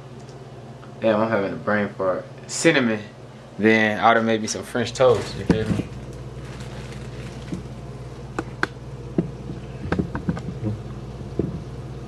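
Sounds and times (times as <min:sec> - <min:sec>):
low buzzing hum: 0:00.0 - 0:12.0
fat popping and crackling: 0:05.0 - 0:11.8.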